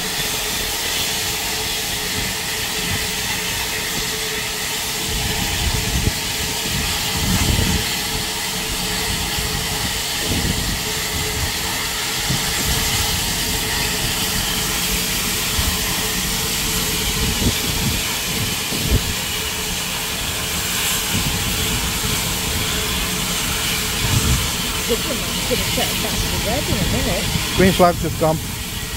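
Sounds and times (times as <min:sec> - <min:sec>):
steam locomotive hissing: 0:00.0 - 0:28.9.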